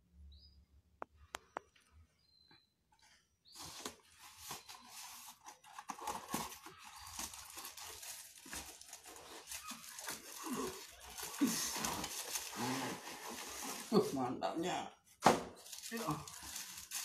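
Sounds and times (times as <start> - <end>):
plastic wrapping crinkling: 3.5 - 14.2, 15.5 - 17.0.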